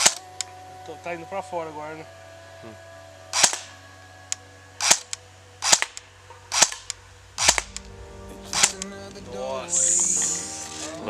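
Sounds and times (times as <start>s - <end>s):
airsoft rifle shots: 0.0s - 0.2s, 3.4s - 3.7s, 4.8s - 8.9s.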